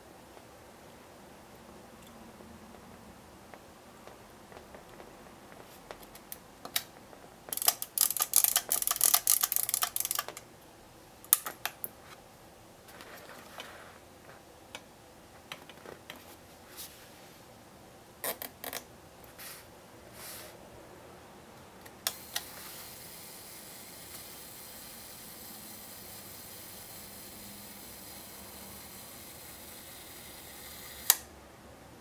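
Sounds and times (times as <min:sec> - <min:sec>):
camera crank ratcheting clicks: 0:07.5 - 0:10.4
camera mechanical clicks: 0:07.5 - 0:10.4, 0:30.3 - 0:31.3.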